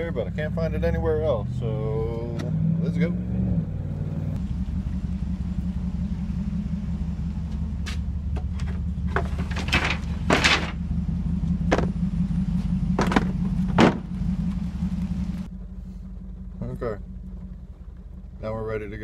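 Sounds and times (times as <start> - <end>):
engine idling: 0.0 - 2.3, 4.3 - 19.0
wooden knocks and clatters: 8.3 - 10.8, 11.6 - 12.0, 13.0 - 14.1.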